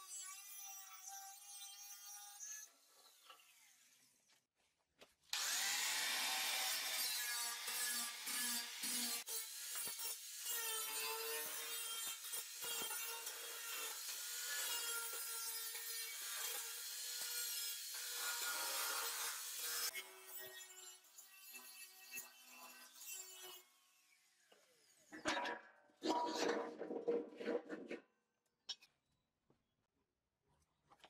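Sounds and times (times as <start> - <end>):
angle grinder cutting sheet steel: 5.4 - 23.6.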